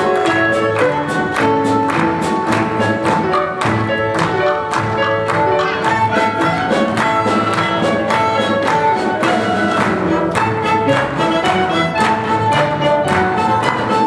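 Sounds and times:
orchestra playing fast dance music: 0:00.0 - 0:14.0.

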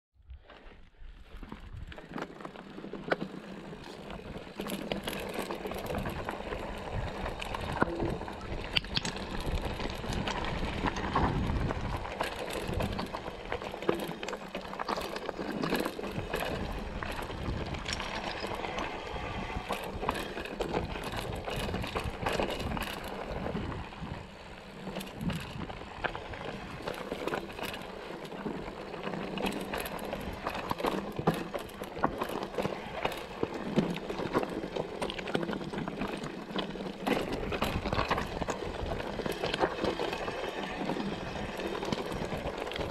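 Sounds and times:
bike rattling over bumps: 0:00.4 - 0:42.9
tyres crunching over stones: 0:01.2 - 0:24.2.

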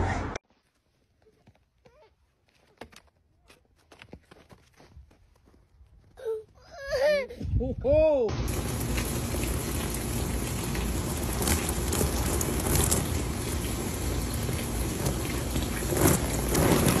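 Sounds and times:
hose water splashing on trampoline: 0:08.4 - 0:17.0.

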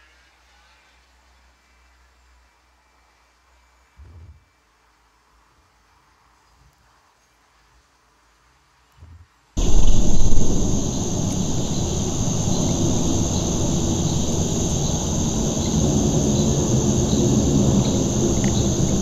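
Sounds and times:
faint regular ticks: 0:09.6 - 0:19.0
low rumble: 0:09.6 - 0:19.0
shrill insect drone: 0:09.6 - 0:19.0.

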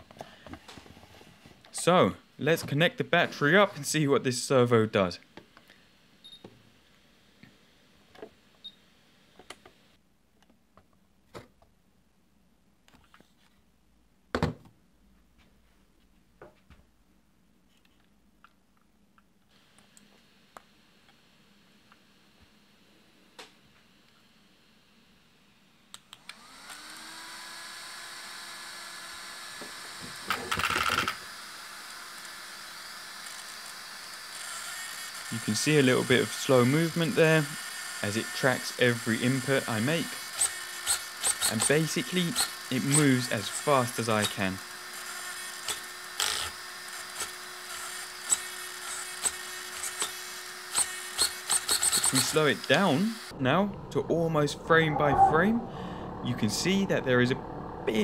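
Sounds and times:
small cooling fan whirring: 0:21.3 - 0:58.0
short high electronic beep: 0:54.7 - 0:56.0.

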